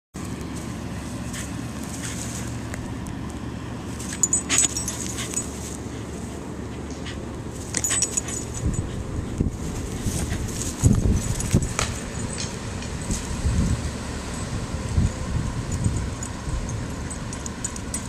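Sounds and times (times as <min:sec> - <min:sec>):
steady low rumble: 0:00.2 - 0:18.0
dog collar tag jingling: 0:04.0 - 0:05.8, 0:07.6 - 0:13.3, 0:15.6 - 0:18.0.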